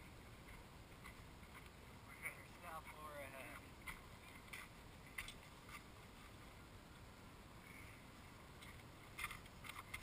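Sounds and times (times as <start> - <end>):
faint footsteps on dry dirt: 0.0 - 6.6.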